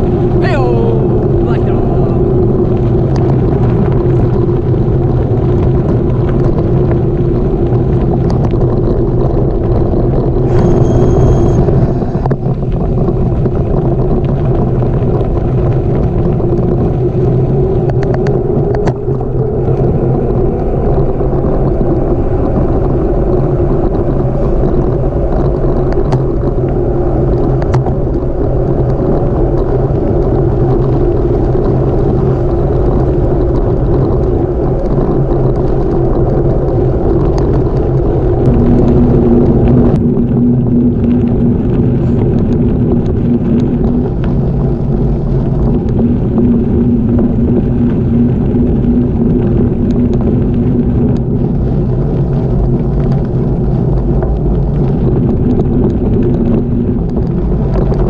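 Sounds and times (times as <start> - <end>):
wind on microphone: 0.0 - 58.0
bicycle tyres rolling on gravel: 2.2 - 58.0
high-pitched squeal: 10.4 - 12.8.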